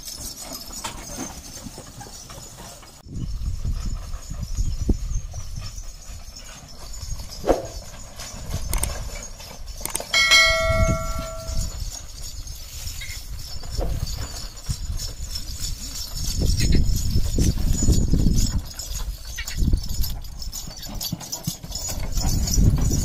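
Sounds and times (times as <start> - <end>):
hooves on dirt track: 0.0 - 23.0
wooden-wheeled cart rumbling: 0.0 - 23.0
bell ringing: 10.1 - 11.8.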